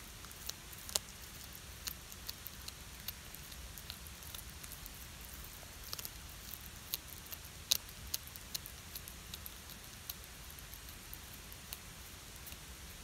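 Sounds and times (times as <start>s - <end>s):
cat crunching fish bones: 0.2s - 11.9s.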